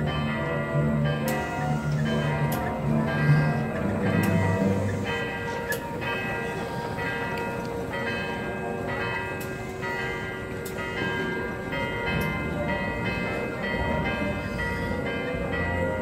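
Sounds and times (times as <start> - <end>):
church bells ringing: 0.0 - 16.0.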